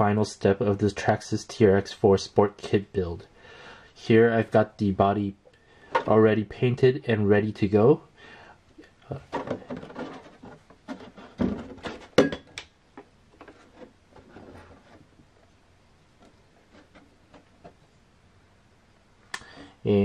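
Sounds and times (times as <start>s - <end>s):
plastic rustling with light knocks: 9.0s - 18.0s.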